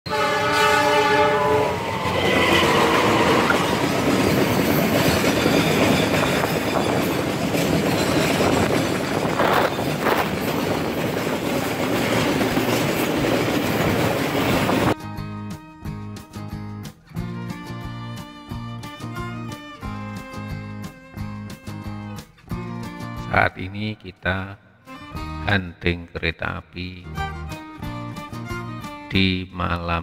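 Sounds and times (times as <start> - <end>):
train horn: 0.1 - 4.0
train wheels rumbling on rails: 1.3 - 15.0.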